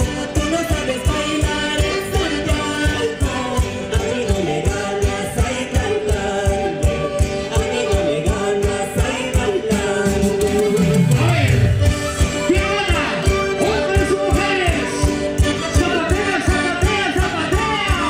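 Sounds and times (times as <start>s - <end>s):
woman singing: 0.0s - 11.0s
guitars: 0.0s - 18.0s
man singing: 0.0s - 18.0s
violin: 0.0s - 18.0s.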